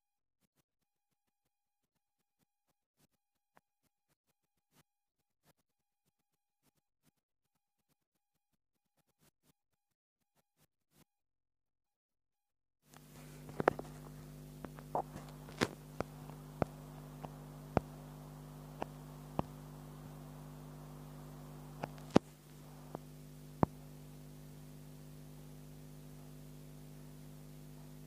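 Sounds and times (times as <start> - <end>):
low electrical hum: 12.9 - 28.0.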